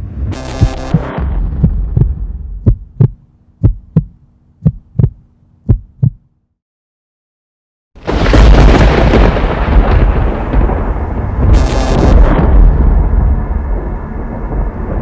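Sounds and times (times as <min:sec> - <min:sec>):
steady low hum: 0:00.0 - 0:06.5
heartbeat thumps: 0:00.4 - 0:06.2.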